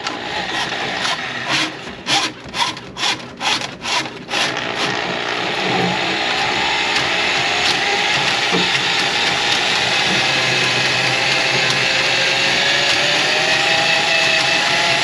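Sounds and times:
drain cleaning machine motor running: 4.2 - 15.0.

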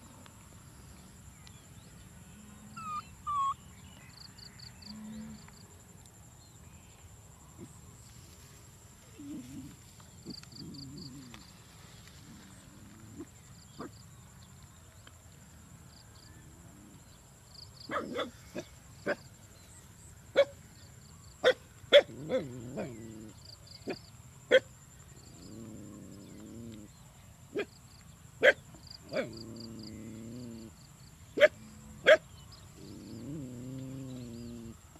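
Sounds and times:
lower animal calls: 2.4 - 3.7
high chirps: 2.8 - 3.7.

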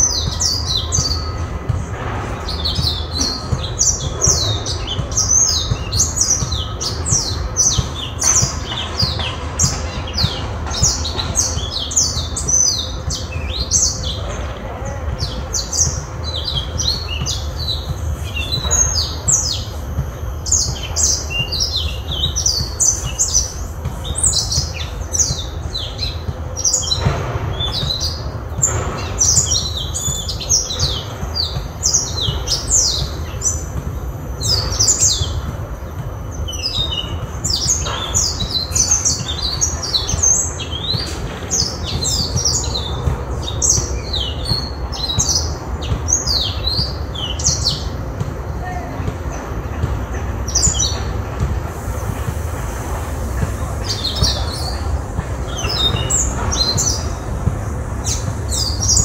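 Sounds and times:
songbird singing chirps and trills: 2.4 - 48.3.

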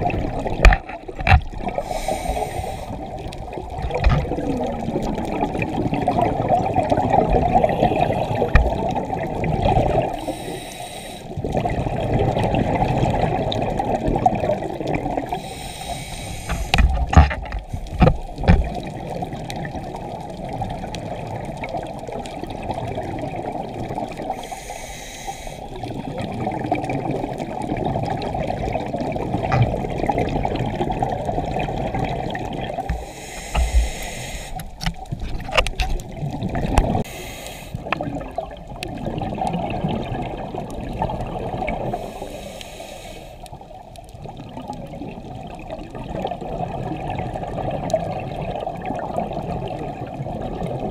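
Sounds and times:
regulator exhale bubbling: 1.6 - 19.4, 21.9 - 35.2
regulator inhalation hiss: 1.8 - 3.1, 10.1 - 11.3, 15.3 - 16.8, 24.3 - 25.7, 33.0 - 34.8, 37.0 - 37.9, 42.0 - 43.5.

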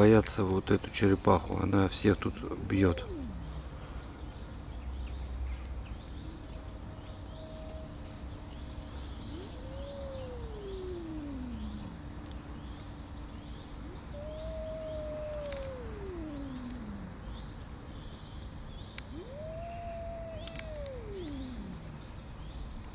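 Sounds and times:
faint birds chirping: 0.0 - 22.9
cat yowling: 2.4 - 3.6, 9.2 - 12.2, 13.9 - 17.5, 19.1 - 22.2.

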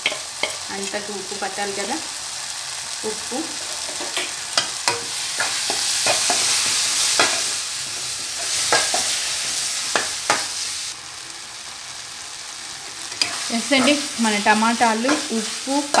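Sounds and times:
food sizzling in hot oil: 0.0 - 16.0
metal spatula scraping pan: 3.6 - 10.6, 13.1 - 14.3.

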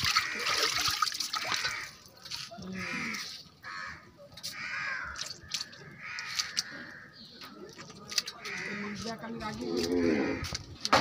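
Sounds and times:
crow cawing: 0.1 - 0.8, 1.4 - 2.0, 2.8 - 7.2, 8.4 - 9.0, 10.0 - 10.6.

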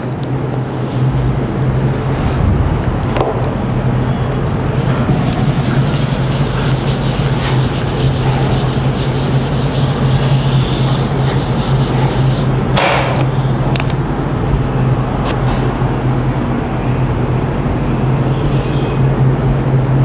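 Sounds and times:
steady low hum: 0.0 - 20.0
chalk scratching on blackboard: 4.9 - 12.6.

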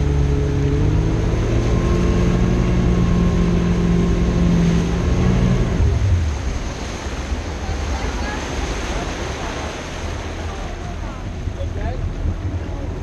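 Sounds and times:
speedboat engine running: 0.0 - 13.0
wake water rushing: 0.0 - 13.0.

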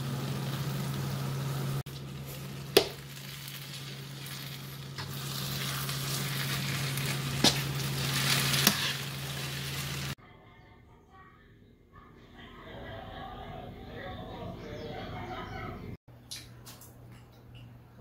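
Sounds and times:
vegetables sizzling in frying pan: 0.0 - 10.2.

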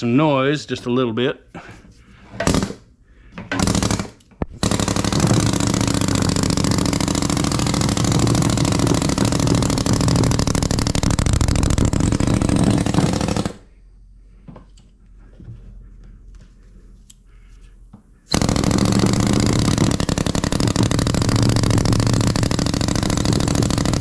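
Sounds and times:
pneumatic rammer hammering: 2.4 - 2.8, 3.5 - 13.6, 18.3 - 24.0.

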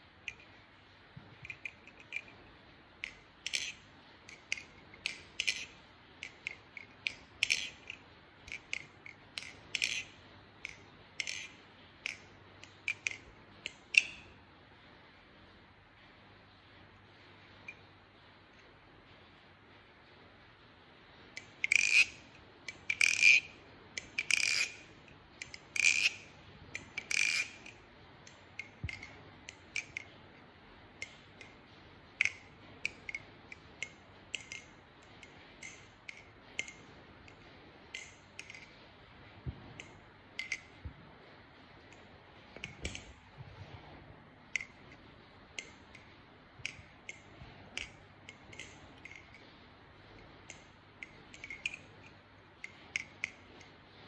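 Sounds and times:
butterfly knife clacking: 3.0 - 14.3, 21.4 - 30.2, 32.2 - 34.7, 50.5 - 53.7.

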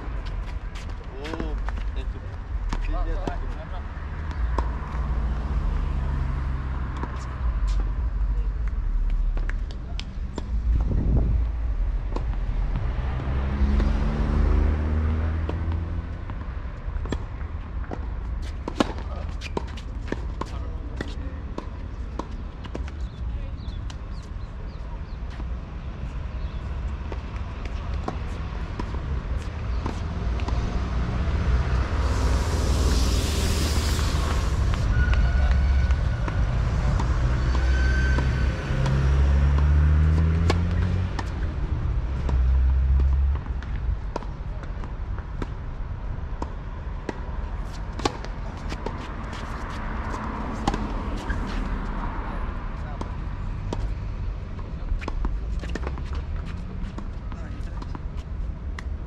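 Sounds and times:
vehicle passing: 0.0 - 8.3, 10.2 - 20.5, 26.7 - 44.6, 45.3 - 58.9
tennis ball impacts: 15.4 - 23.1, 26.4 - 33.0, 35.9 - 45.7, 46.3 - 51.7, 54.6 - 58.0
tennis ball racket strikes: 48.0 - 51.7.

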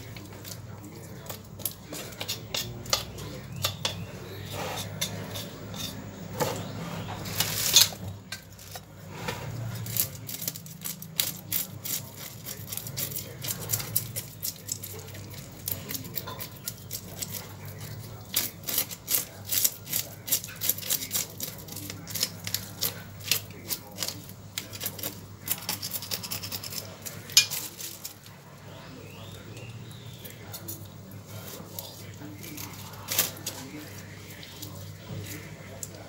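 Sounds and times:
knife scraping fish scales: 1.2 - 8.0, 15.6 - 28.2, 30.1 - 35.5.

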